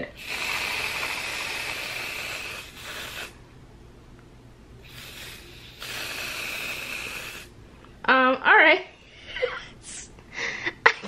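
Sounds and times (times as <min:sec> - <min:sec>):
aerosol can hissing: 0:00.2 - 0:03.4, 0:04.8 - 0:07.5.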